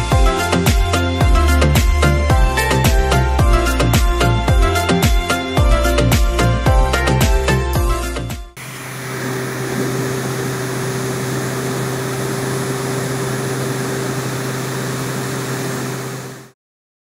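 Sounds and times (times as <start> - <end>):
small electric fan whirring: 8.6 - 16.6.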